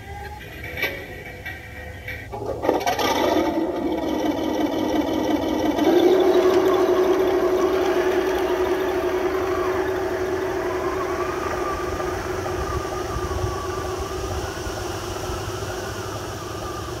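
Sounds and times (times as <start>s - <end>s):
model tank motor whine: 0.0s - 17.0s
wind on microphone: 5.8s - 17.0s.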